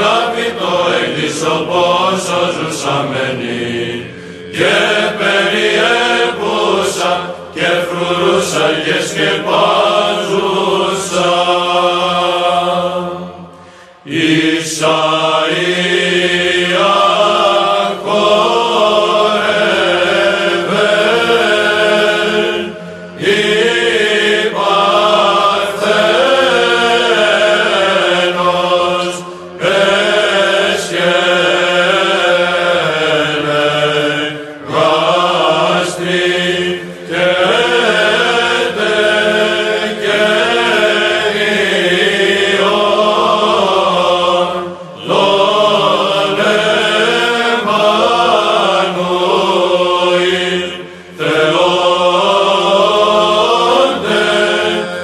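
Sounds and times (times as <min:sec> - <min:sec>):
low vocal drone: 0:00.0 - 0:55.0
melismatic chant singing: 0:00.0 - 0:55.0.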